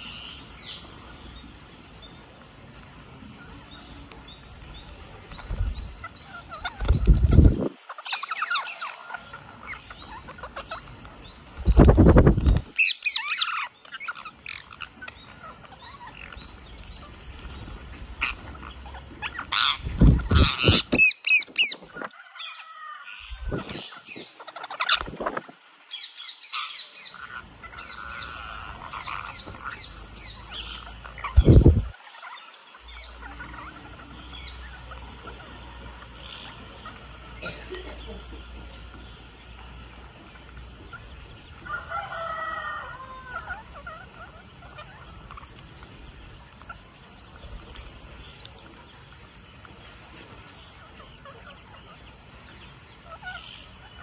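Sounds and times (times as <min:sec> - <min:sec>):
parakeets squawking: 0:05.1 - 0:11.0, 0:12.8 - 0:17.3, 0:17.9 - 0:25.2, 0:26.1 - 0:38.8, 0:43.1 - 0:49.9, 0:53.0 - 0:54.0
loud low whooshes: 0:31.4 - 0:31.9.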